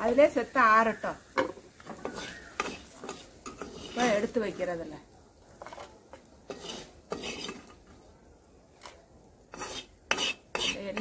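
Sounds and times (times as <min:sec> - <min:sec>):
steel spoon scraping metal pan: 0:02.0 - 0:04.4, 0:06.5 - 0:07.8, 0:09.5 - 0:11.0.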